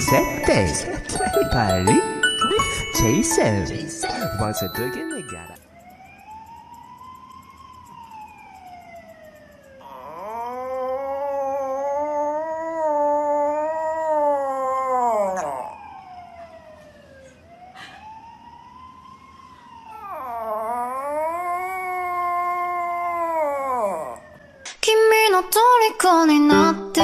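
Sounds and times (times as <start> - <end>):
dog howling: 9.8 - 16.0, 19.9 - 24.4.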